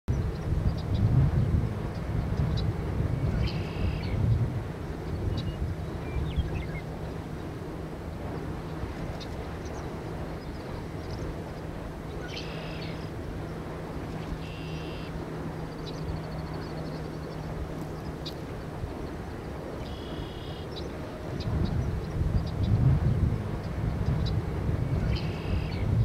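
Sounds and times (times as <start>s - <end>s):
low steady hum: 0.1s - 26.0s
wind rumble: 0.1s - 26.0s.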